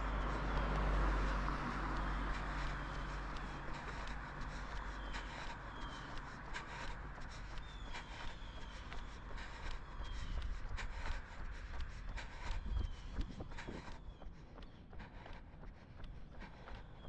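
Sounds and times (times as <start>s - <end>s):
low outdoor rumble: 0.0s - 14.2s.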